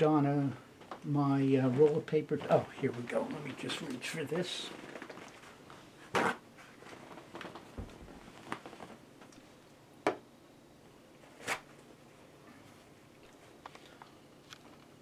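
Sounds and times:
paper towel ripping: 1.8s - 7.6s, 11.3s - 11.7s.

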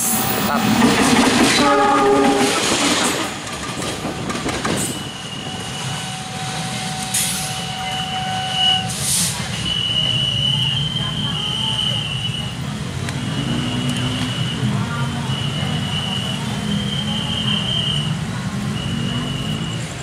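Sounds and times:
locomotive horn chord: 1.6s - 2.6s.

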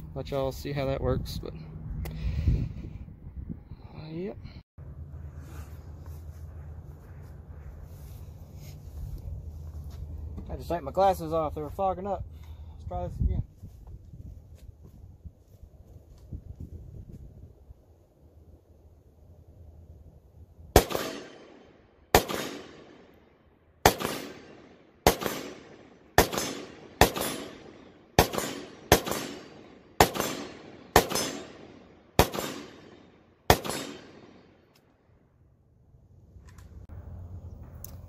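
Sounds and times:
rifle shots with echo: 20.8s - 23.2s, 23.8s - 34.6s.

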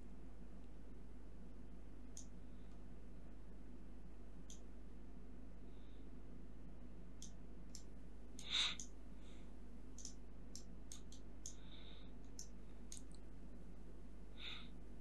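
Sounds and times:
steady low hum: 0.0s - 15.0s
computer mouse clicking: 9.9s - 11.6s, 12.2s - 13.3s.

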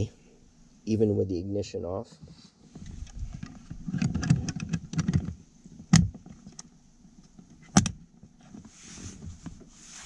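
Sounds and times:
light handling noise: 2.0s - 10.0s.

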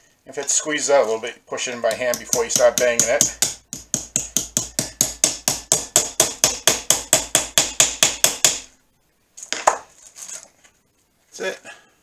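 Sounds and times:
small hammer tapping on copper: 1.9s - 8.6s.

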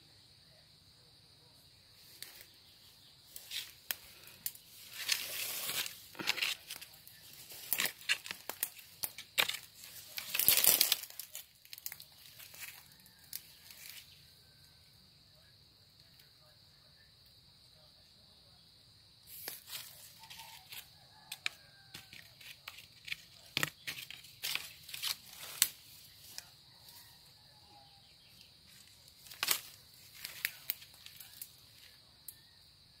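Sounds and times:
rustling and leaf tearing: 3.4s - 14.0s, 19.3s - 26.5s, 28.7s - 32.0s
twigs snapping: 3.4s - 14.0s, 19.4s - 26.5s, 28.7s - 32.4s.

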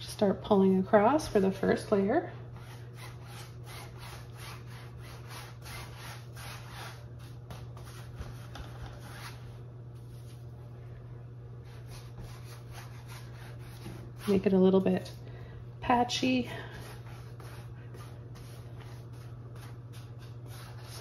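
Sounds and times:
steady low hum: 0.0s - 21.0s
brush scrubbing on canvas: 2.6s - 10.4s, 11.6s - 14.6s, 16.7s - 21.0s.

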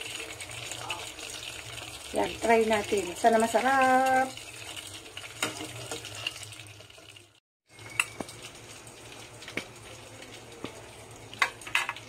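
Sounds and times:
fries fizzing in oil: 0.0s - 12.0s.

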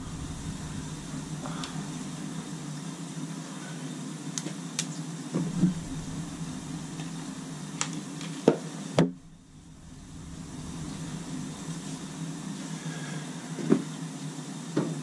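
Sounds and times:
boiler humming: 0.0s - 3.5s, 5.4s - 13.5s.

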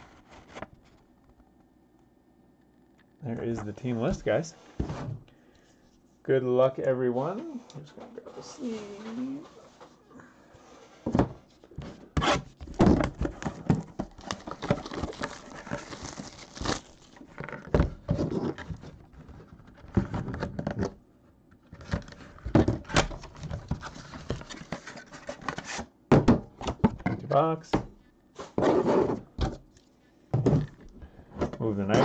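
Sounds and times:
plastic wrap crinkling: 13.4s - 17.7s
box knocking on table: 26.1s - 27.2s.

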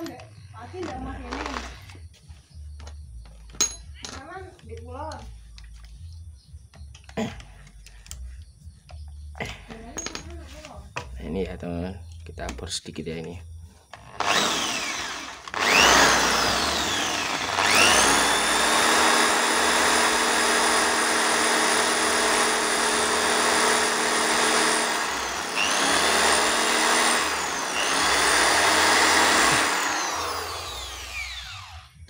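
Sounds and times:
electric drill boring into steel: 14.0s - 32.0s.

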